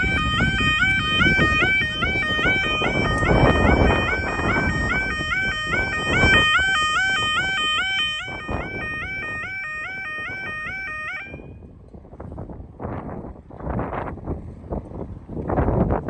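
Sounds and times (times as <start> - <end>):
level crossing warning alarms: 0.0 - 11.7
wind rumble on microphone: 0.0 - 16.0.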